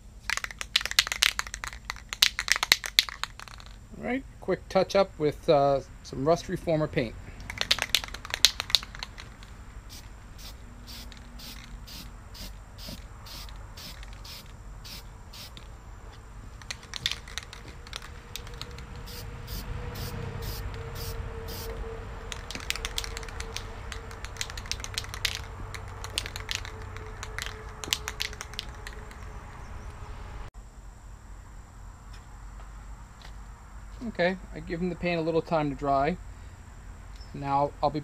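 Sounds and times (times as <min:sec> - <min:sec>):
spray can rattling: 0:00.2 - 0:03.8, 0:07.4 - 0:15.7, 0:16.5 - 0:29.3
spray can hissing: 0:07.6 - 0:15.7, 0:16.6 - 0:29.0.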